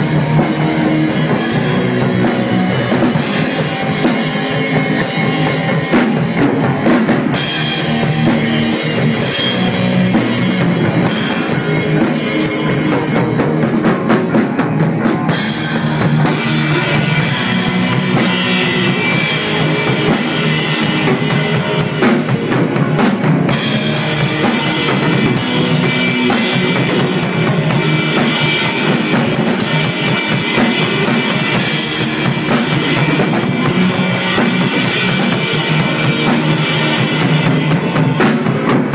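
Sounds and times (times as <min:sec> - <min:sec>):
drum kit: 0:00.0 - 0:38.9
rock band playing: 0:00.0 - 0:38.9.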